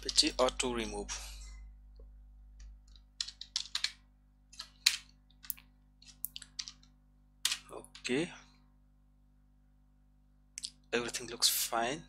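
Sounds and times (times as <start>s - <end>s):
computer keyboard keys clicking: 2.9s - 4.0s, 4.6s - 6.9s.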